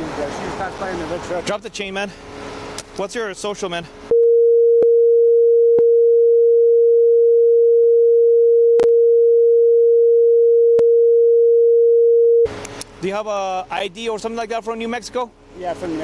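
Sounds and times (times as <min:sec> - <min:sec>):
censor bleep tone: 0:04.1 - 0:12.5.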